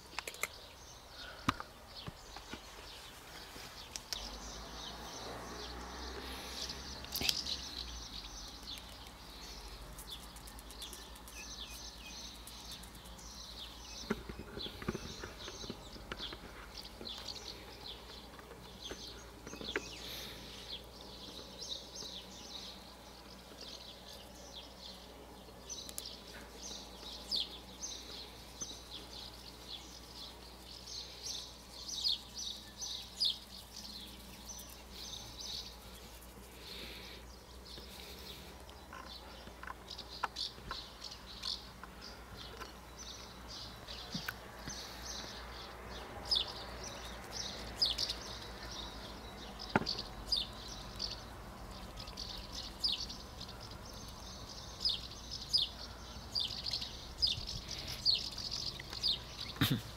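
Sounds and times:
small birds chirping: 0:00.0 - 0:59.9
sharp clicks: 0:00.1 - 0:00.6.

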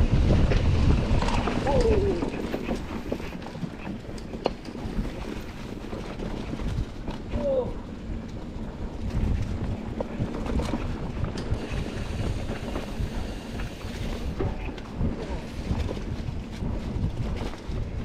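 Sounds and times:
bike clicks and rattles: 0:00.0 - 0:18.0
bike rolling on dirt trail: 0:00.0 - 0:18.0
wind buffeting microphone: 0:00.0 - 0:18.0.

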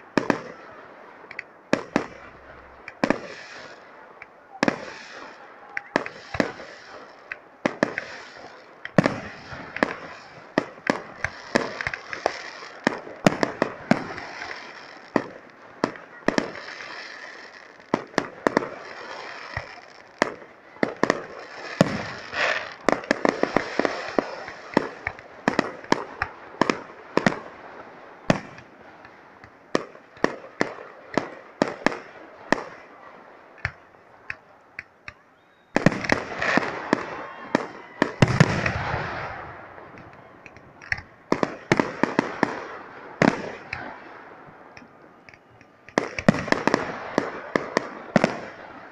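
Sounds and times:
firework crackling: 0:00.0 - 0:48.9
firework shells bursting: 0:05.8 - 0:27.6, 0:28.2 - 0:35.2, 0:35.8 - 0:48.5.

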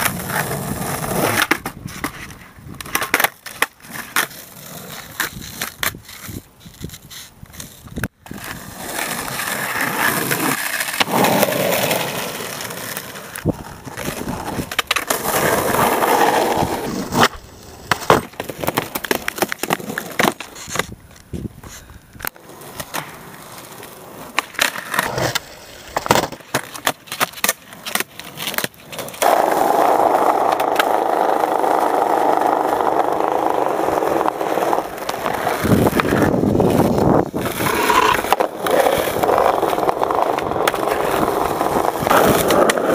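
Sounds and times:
skateboard clacking: 0:00.0 - 0:42.9
skateboard wheels rolling on concrete: 0:00.0 - 0:42.9.

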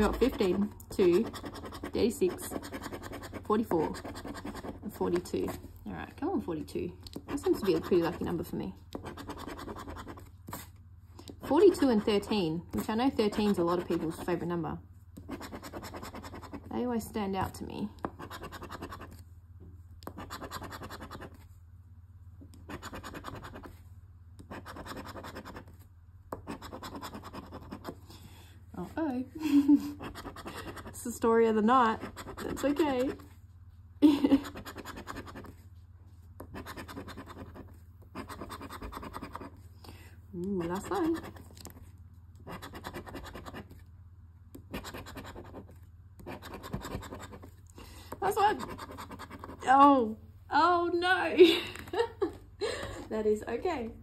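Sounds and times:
scratch ticket being scraped: 0:00.0 - 0:05.6, 0:07.2 - 0:10.8, 0:26.4 - 0:28.0, 0:36.5 - 0:39.6, 0:40.4 - 0:43.8, 0:44.7 - 0:47.6, 0:48.2 - 0:49.7.

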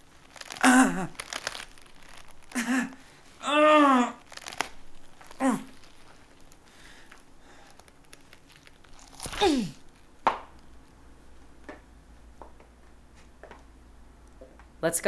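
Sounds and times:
man groaning in pain: 0:00.6 - 0:01.2, 0:02.5 - 0:04.3, 0:05.4 - 0:05.7, 0:09.2 - 0:09.8.

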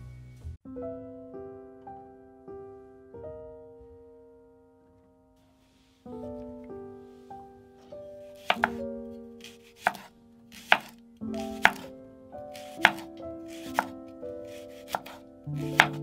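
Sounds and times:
soft background music: 0:00.0 - 0:16.0
knife chopping on cutting board: 0:08.4 - 0:08.8, 0:09.4 - 0:11.8, 0:12.6 - 0:13.9, 0:14.5 - 0:16.0.

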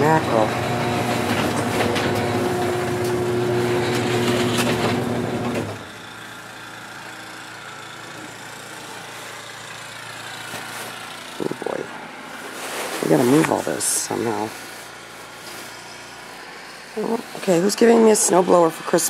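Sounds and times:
motor humming and clicking: 0:00.0 - 0:12.6.

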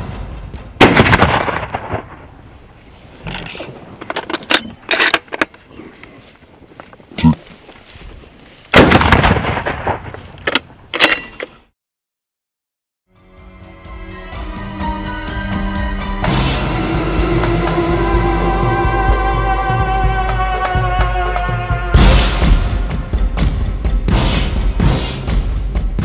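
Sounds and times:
rifle shots with echo: 0:00.8 - 0:02.3.

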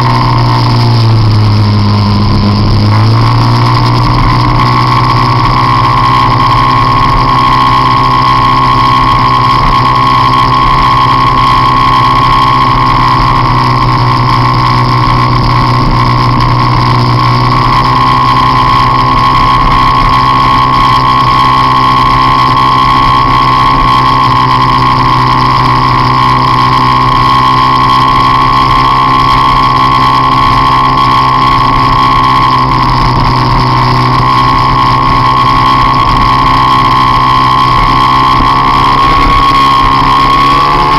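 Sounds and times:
scooter engine at high revs: 0:00.0 - 0:40.9.

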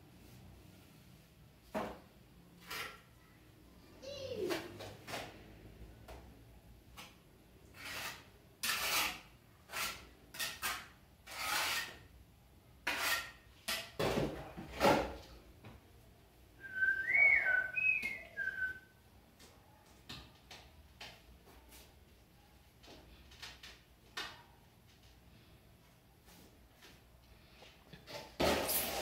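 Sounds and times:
trowel scraping mortar in tray: 0:07.7 - 0:12.1, 0:12.8 - 0:14.0
person whistling a tune: 0:16.6 - 0:18.8.

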